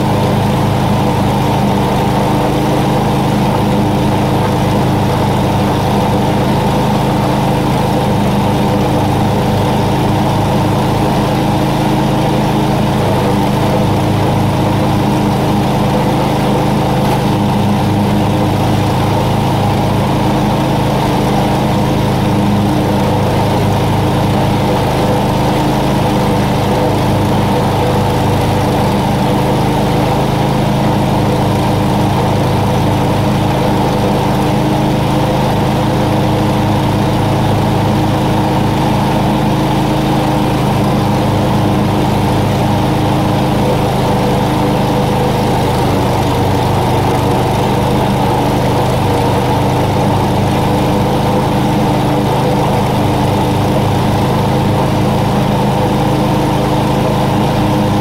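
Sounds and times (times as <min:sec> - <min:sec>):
lawn mower engine running: 0:00.0 - 0:58.0.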